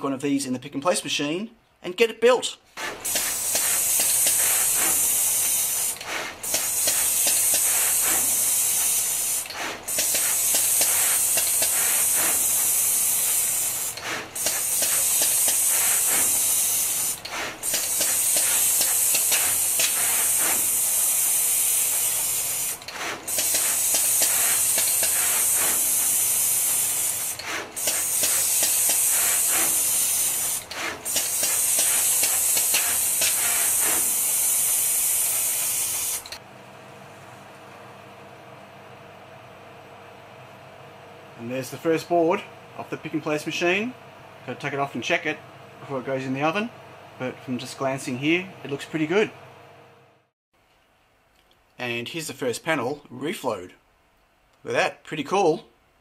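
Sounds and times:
machine high hiss: 2.8 - 36.4.

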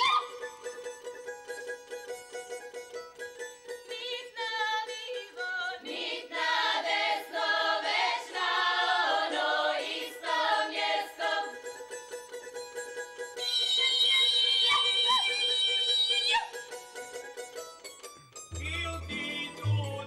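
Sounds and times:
group singing in chorus: 5.7 - 11.6
plucked strings: 16.4 - 20.0.

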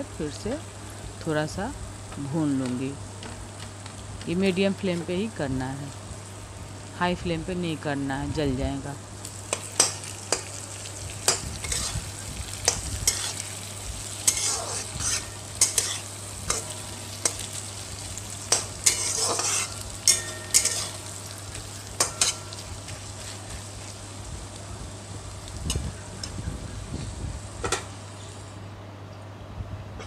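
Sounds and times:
oil sizzling: 0.0 - 7.0, 7.7 - 28.6
metal spatula scraping a pan: 11.3 - 12.1, 12.7 - 13.5, 14.2 - 17.4, 18.5 - 21.1, 22.0 - 22.6.

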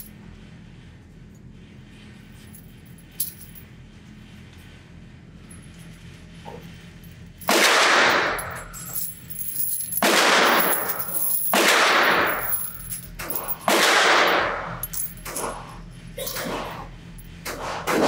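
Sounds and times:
brass casings clattering onto table: 8.1 - 13.7.

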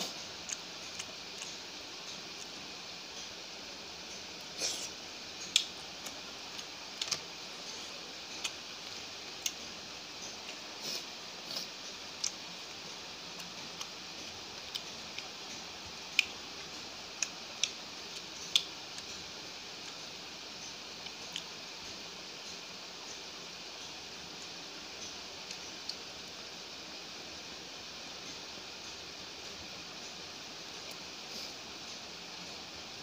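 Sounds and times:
faint hiss: 0.0 - 33.0
chewing smacks: 4.5 - 9.6.

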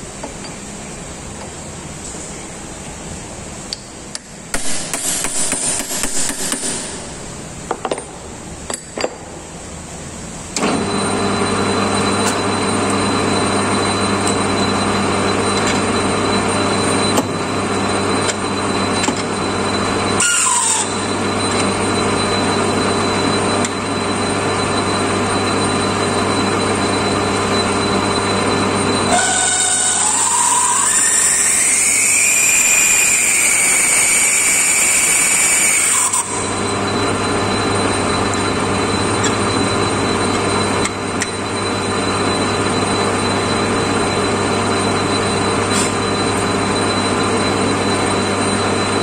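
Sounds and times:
lathe motor humming: 10.6 - 49.0.

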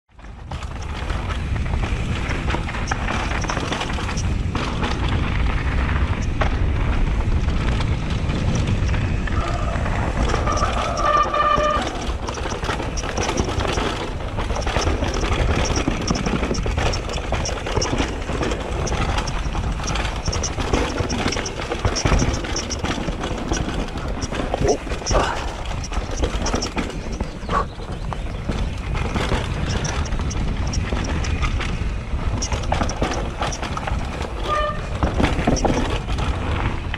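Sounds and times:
mountain bike clattering: 0.1 - 36.9
tyres hitting the trail: 0.2 - 36.9.

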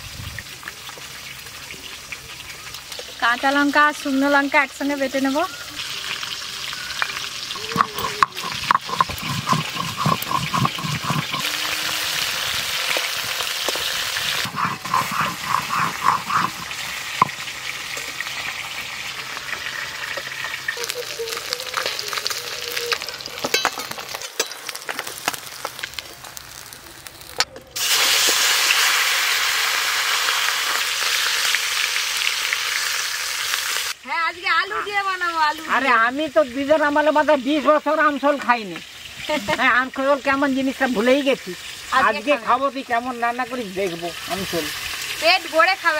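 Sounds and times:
fish frying in hot oil: 0.0 - 45.9
stone roller scraping on stone: 7.5 - 12.5, 14.2 - 17.4
metal spatula stirring in wok: 7.6 - 11.8, 14.4 - 17.3.

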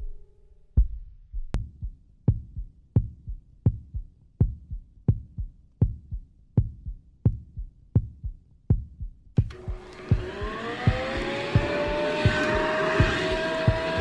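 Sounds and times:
heartbeat double thump: 0.8 - 3.8, 8.0 - 14.0.

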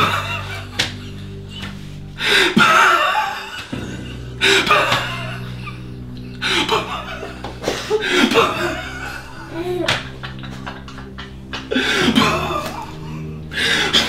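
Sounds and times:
music of held chords: 0.0 - 14.0
man laughing loudly: 2.6 - 13.1.

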